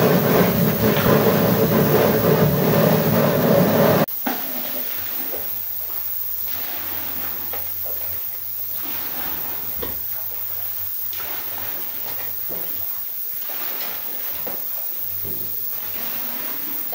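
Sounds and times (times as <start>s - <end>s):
knocks and clunks: 0.0s - 4.1s
water sloshing in bucket: 0.0s - 5.5s.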